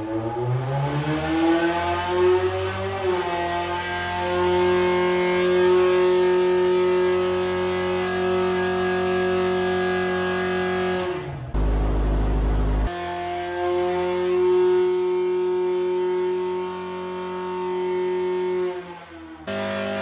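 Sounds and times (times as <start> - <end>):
race engine revving: 0.0 - 13.0.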